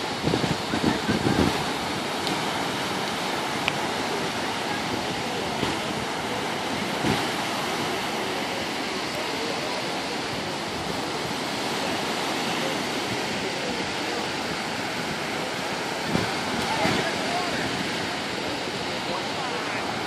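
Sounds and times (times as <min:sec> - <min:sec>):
surf breaking on sand beach: 0:00.0 - 0:20.0.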